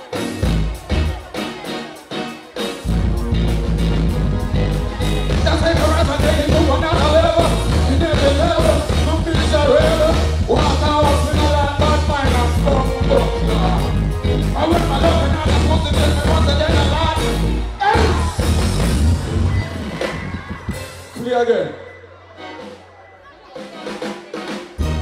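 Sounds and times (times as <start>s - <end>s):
live band music: 0.0s - 25.0s
man singing into microphone: 4.4s - 18.3s.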